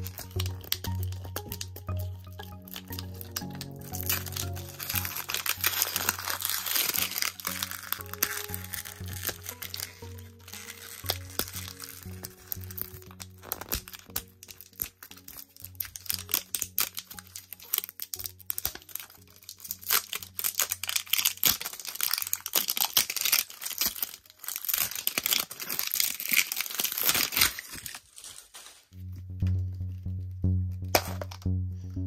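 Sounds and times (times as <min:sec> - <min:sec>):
soft background music: 0:00.0 - 0:28.0, 0:28.9 - 0:32.0
plastic wrapper crinkling and tearing: 0:00.0 - 0:29.2, 0:30.9 - 0:31.5.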